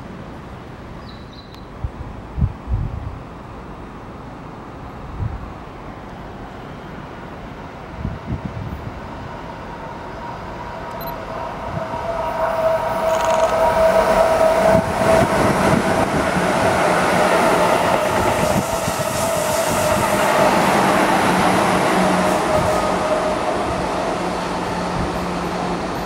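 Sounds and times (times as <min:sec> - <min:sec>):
electric train passing: 0:03.3 - 0:26.0
steady high tone: 0:09.3 - 0:25.6.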